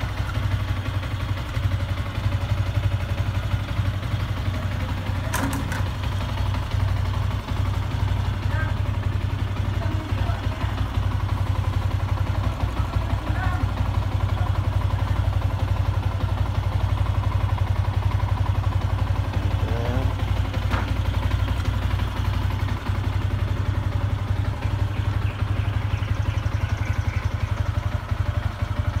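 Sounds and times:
motorcycle engine idling: 0.0 - 29.0.

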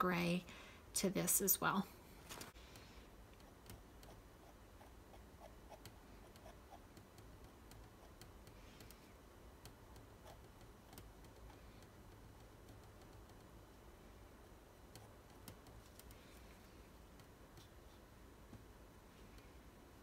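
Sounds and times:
palette knife dabbing paint: 3.4 - 13.7.

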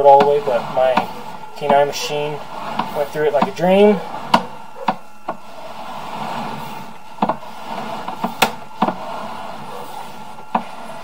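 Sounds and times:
cable knocking and clicking: 0.1 - 1.9, 4.2 - 5.4, 7.2 - 7.4, 8.0 - 9.0.

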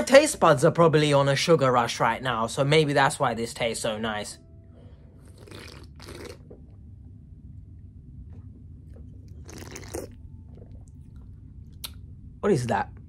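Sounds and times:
low steady hum: 0.0 - 13.0
snack crunch: 5.3 - 6.6, 9.3 - 12.0
soft chewing: 8.3 - 12.1.

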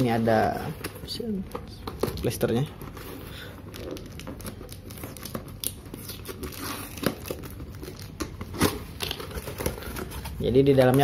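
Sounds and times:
loose tape crinkling: 2.0 - 11.0
packing tape ripping: 3.7 - 10.2.

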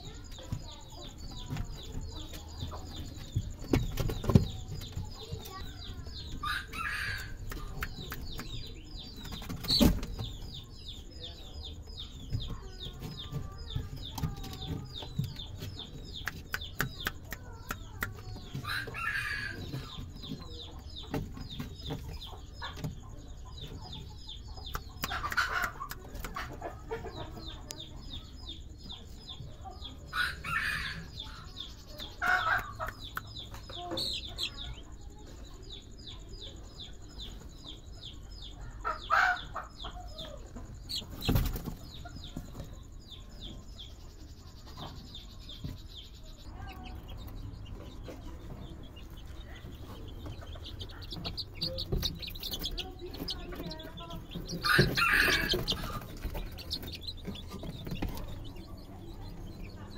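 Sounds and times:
chickens clucking and calling: 0.0 - 59.9
fast high chirping: 47.0 - 59.9.

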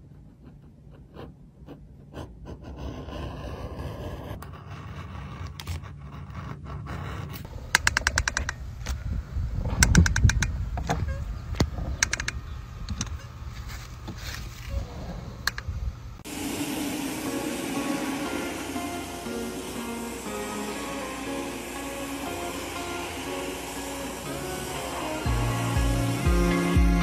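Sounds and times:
edge beveler scraping leather: 0.2 - 7.5.

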